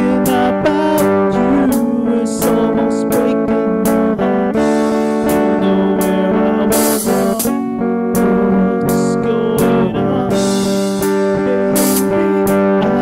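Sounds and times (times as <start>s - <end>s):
live band playing: 0.0s - 13.0s
cymbal hits: 11.8s - 12.2s.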